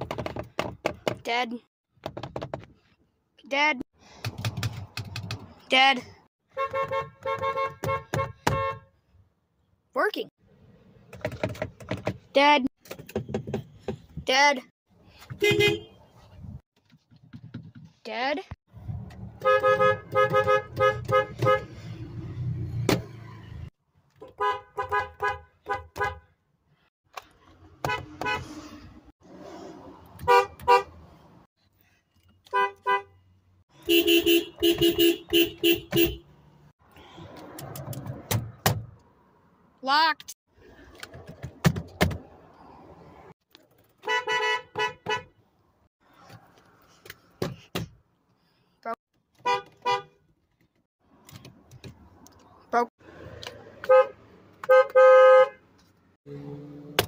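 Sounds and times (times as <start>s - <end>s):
car horn toots: 6.5s - 8.9s, 15.4s - 16.0s, 19.4s - 21.7s, 24.2s - 26.2s, 30.2s - 30.9s, 33.8s - 36.3s, 44.0s - 45.3s, 49.4s - 50.2s, 53.8s - 55.6s.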